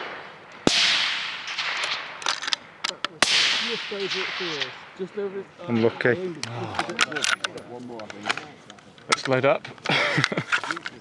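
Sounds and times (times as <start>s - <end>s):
rifle shots echoing: 0.0s - 6.0s.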